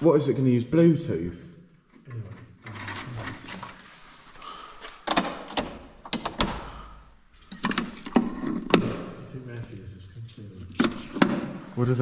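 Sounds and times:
sharp knocks and clicks: 5.0s - 6.7s, 7.5s - 9.2s, 10.7s - 11.6s.

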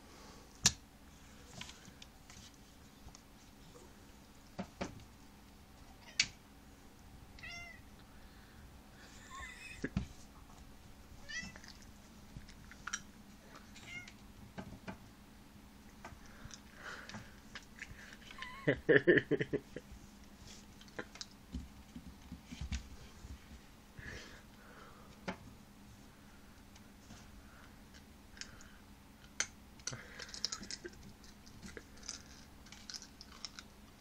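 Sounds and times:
cat meowing: 7.4s - 7.8s, 11.2s - 11.6s.

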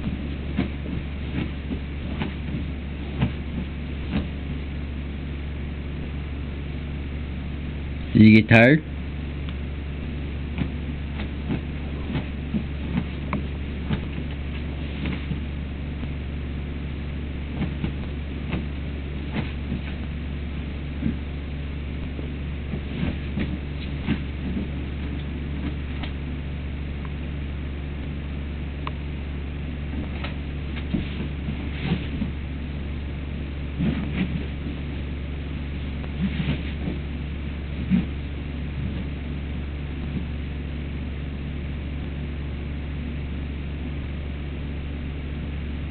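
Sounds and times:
puppy scratching at blanket: 0.0s - 4.8s, 10.4s - 16.3s, 17.4s - 26.4s, 29.8s - 40.6s
steady low hum: 0.0s - 45.9s.

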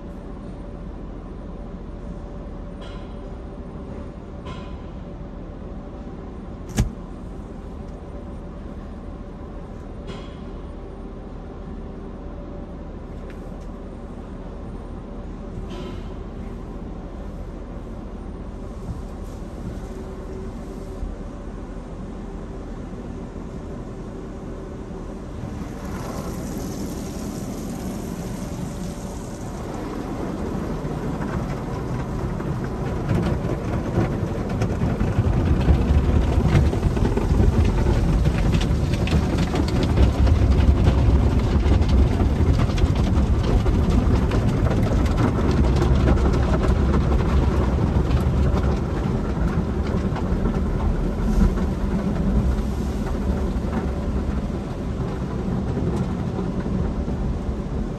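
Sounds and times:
car wash machinery rumbling: 0.0s - 57.9s
water spray rushing: 25.4s - 30.2s.

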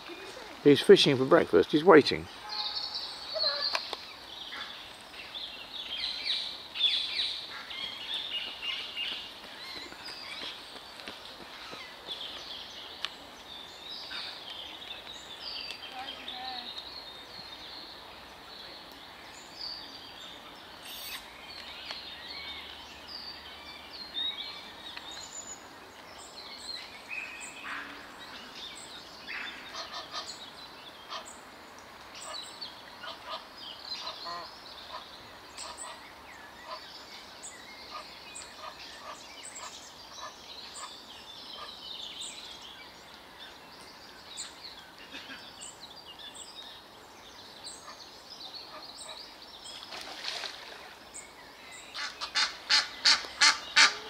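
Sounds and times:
small birds chirping: 0.0s - 54.0s
waterfowl calling rapidly: 52.0s - 54.0s.

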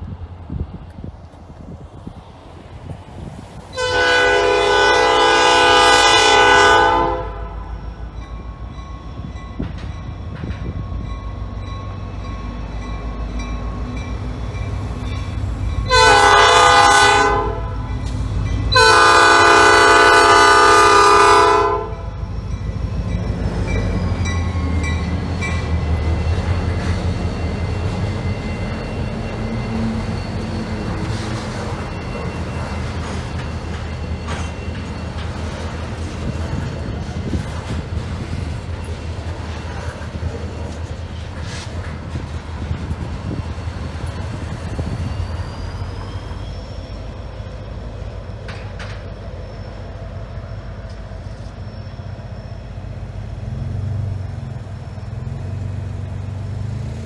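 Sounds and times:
freight cars rolling over bridge: 0.0s - 57.0s
locomotive air horn blasts: 3.7s - 7.8s, 15.9s - 18.0s, 18.7s - 22.2s.

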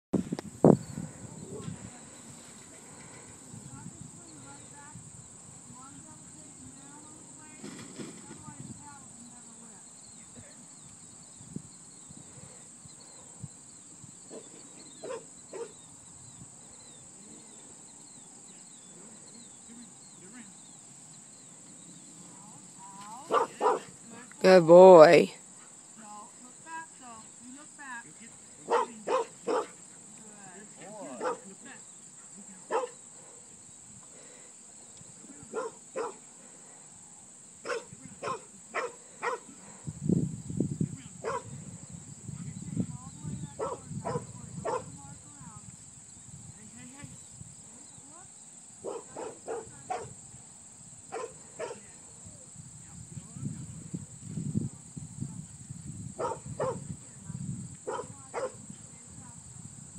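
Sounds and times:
insects chirring: 0.2s - 59.9s
dog barking: 15.0s - 15.7s, 23.3s - 23.9s, 28.7s - 29.8s, 31.1s - 31.5s, 32.7s - 33.0s, 35.5s - 36.2s, 37.6s - 39.5s, 41.2s - 41.6s, 43.6s - 44.9s, 48.8s - 50.2s, 51.1s - 51.8s, 56.2s - 56.8s, 57.9s - 58.6s.

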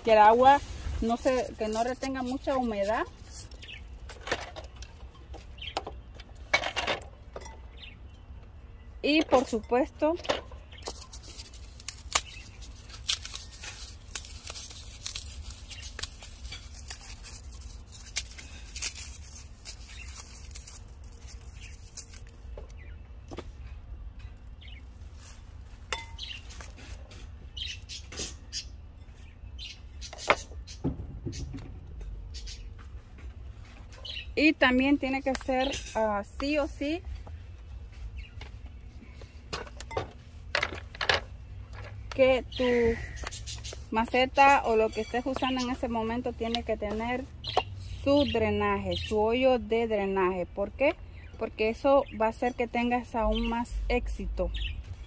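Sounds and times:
scoop scraping potting soil: 0.0s - 4.1s.

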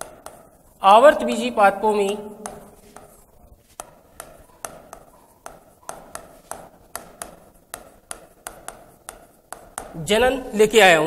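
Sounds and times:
pen tapping on glass: 0.0s - 0.5s, 1.9s - 10.0s.

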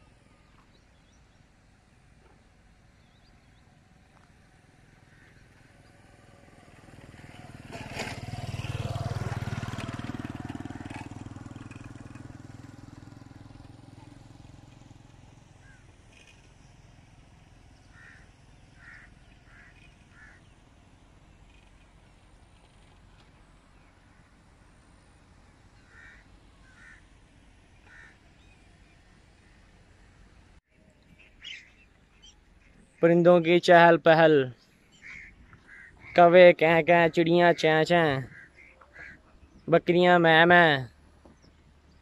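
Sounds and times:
motorcycle passing by: 0.0s - 33.0s, 33.9s - 42.0s
short bird calls: 15.6s - 16.4s, 17.8s - 20.6s, 25.8s - 27.1s, 27.8s - 30.2s, 31.1s - 33.2s, 34.5s - 36.4s, 38.2s - 39.7s.

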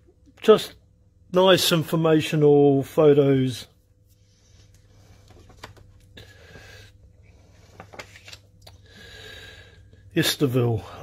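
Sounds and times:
low room hum: 0.0s - 11.0s
photo cards rustling and clicking: 4.6s - 6.7s, 7.4s - 8.9s.

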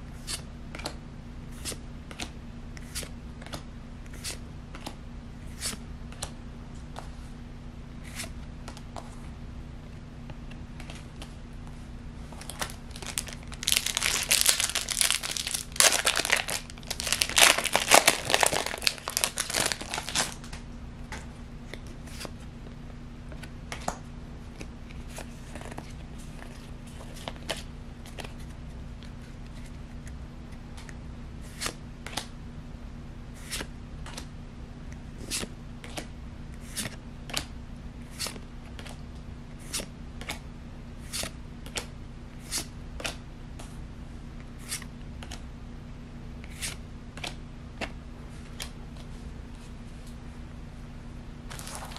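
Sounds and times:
foil wrapper crinkling and tearing: 12.4s - 20.5s, 51.5s - 51.9s.

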